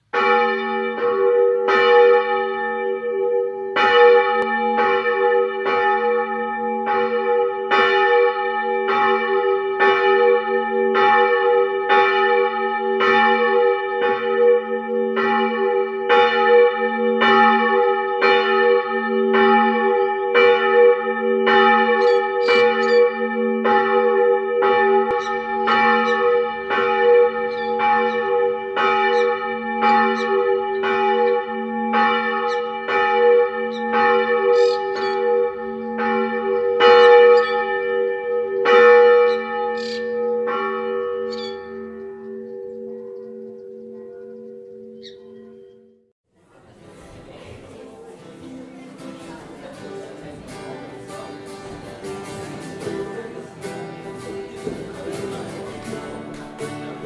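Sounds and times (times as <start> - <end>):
church bell ringing: 0.0 - 46.1, 48.7 - 57.0.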